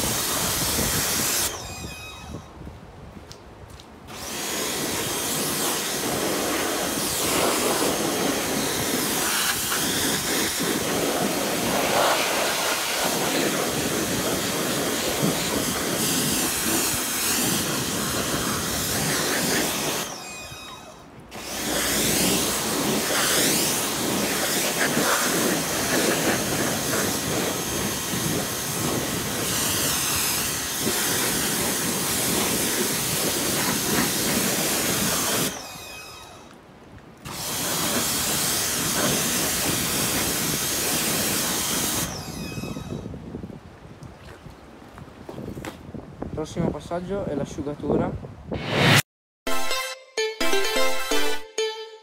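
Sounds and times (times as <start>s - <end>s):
pressure washer spraying water: 0.0s - 2.3s, 4.1s - 36.4s, 37.3s - 42.8s.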